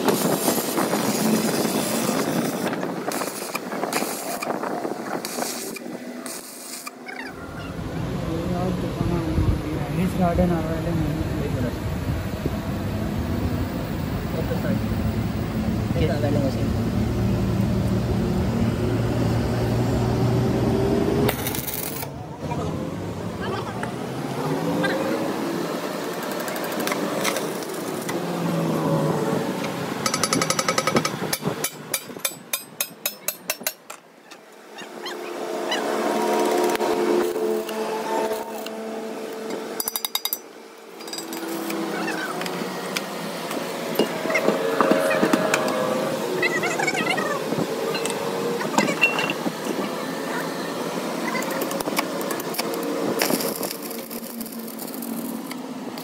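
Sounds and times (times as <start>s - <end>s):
arc welding crackle: 0.0s - 7.1s, 21.3s - 22.1s, 51.3s - 56.0s
workshop noise: 0.0s - 56.0s
hammer striking steel: 30.1s - 33.8s.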